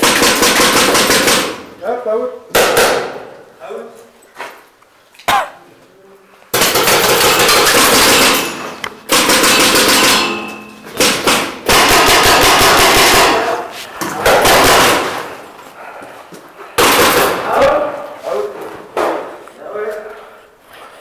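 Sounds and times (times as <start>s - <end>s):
paintball markers rapid firing: 0.0s - 1.7s, 2.5s - 3.2s, 6.5s - 10.3s, 11.0s - 13.6s, 14.2s - 15.4s, 16.8s - 17.6s.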